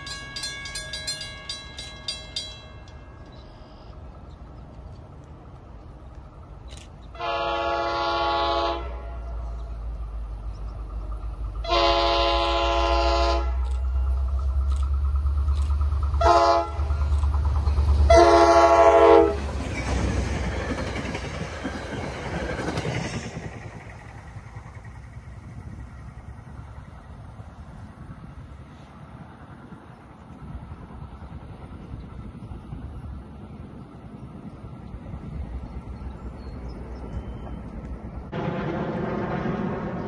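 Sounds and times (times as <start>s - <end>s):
train rumbling: 0.0s - 40.0s
wheel and rail noise: 0.0s - 40.0s
locomotive horn: 7.1s - 9.4s, 11.6s - 14.0s, 16.2s - 17.1s, 18.0s - 19.5s.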